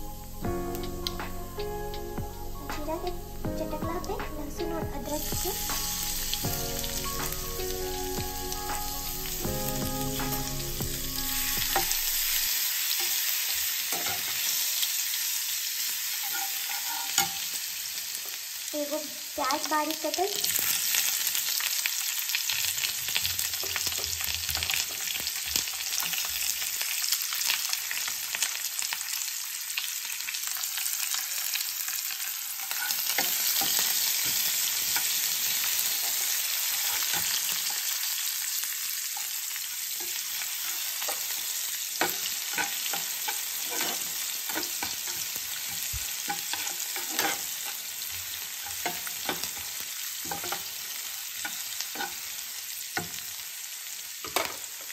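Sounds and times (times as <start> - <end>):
onion sizzling in hot oil: 0.0 - 54.9
spatula scraping and tapping pan: 42.0 - 50.7.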